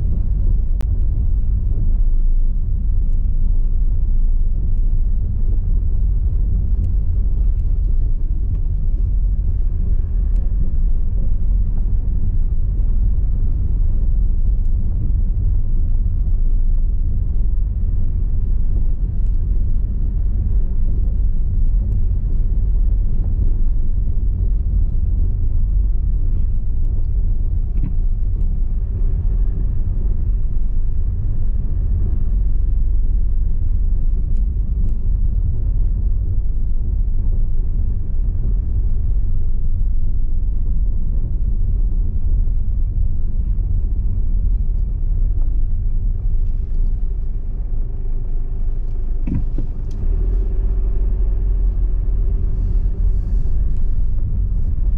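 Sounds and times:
car driving over cobblestones: 0.0s - 54.9s.

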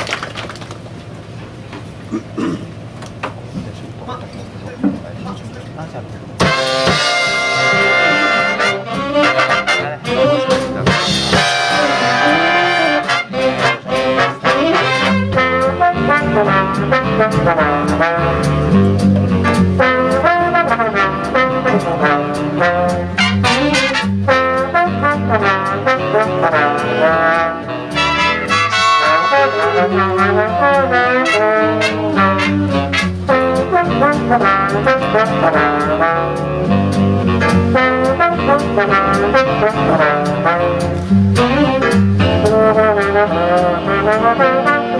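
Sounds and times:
upright bass: 3.7s - 44.9s
jazz big band playing: 6.2s - 44.9s
trombone solo: 6.4s - 18.8s, 19.4s - 44.9s.

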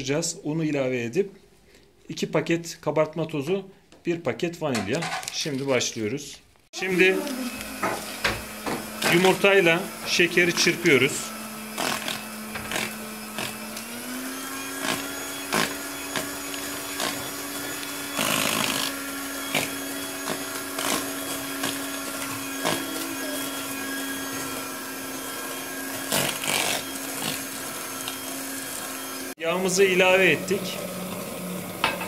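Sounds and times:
electric hand mixer running: 6.8s - 32.0s.

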